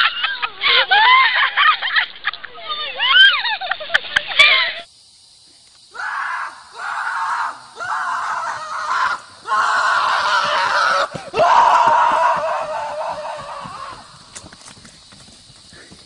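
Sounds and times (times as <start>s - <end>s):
horse rasping shriek-like cries: 6.0s - 14.2s.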